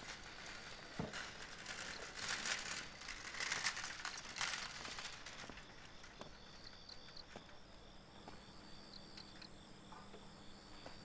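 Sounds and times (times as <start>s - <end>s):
footsteps on cobblestones: 2.0s - 7.6s.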